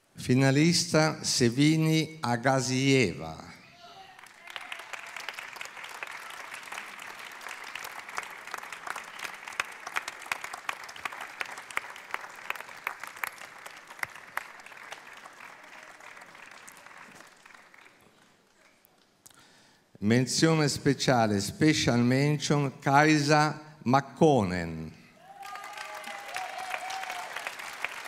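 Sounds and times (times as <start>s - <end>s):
audience applauding: 4.0s - 18.8s, 25.2s - 28.0s.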